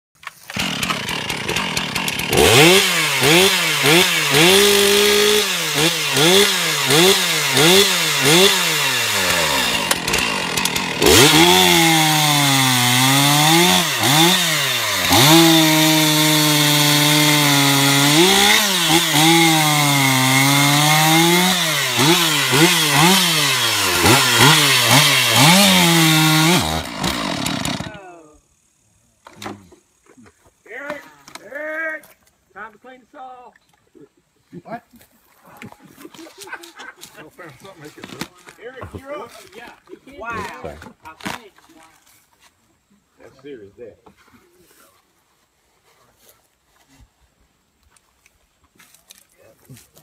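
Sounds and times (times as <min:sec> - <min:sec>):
chainsaw cutting log: 0:00.2 - 0:28.0.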